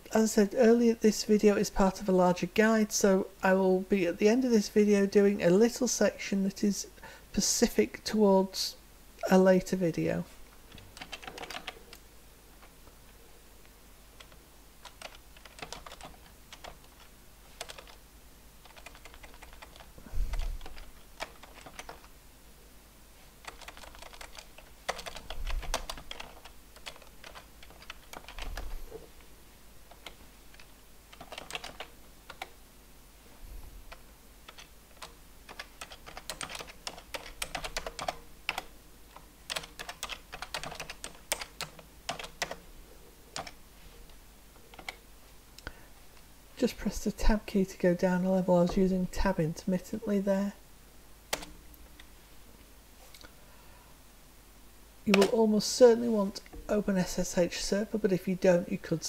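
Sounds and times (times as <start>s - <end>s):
typing on computer keyboard: 10.7s - 12.0s, 14.2s - 18.0s, 18.6s - 22.1s, 23.4s - 28.7s, 29.9s - 32.5s, 34.5s - 42.6s, 43.4s - 43.6s, 44.7s - 45.0s, 51.3s - 51.5s.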